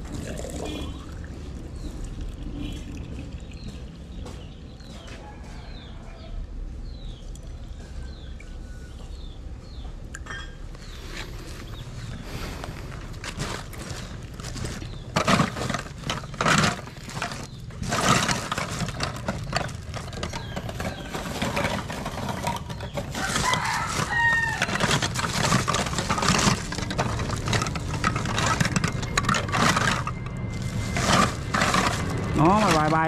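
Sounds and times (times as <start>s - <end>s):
knocks and clatter: 13.2s - 33.0s
rooster crowing: 23.1s - 24.9s.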